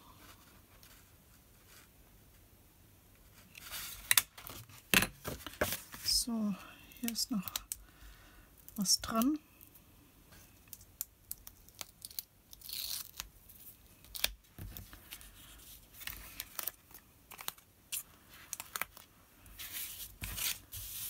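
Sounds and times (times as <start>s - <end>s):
paper rustling: 14.2s - 21.0s.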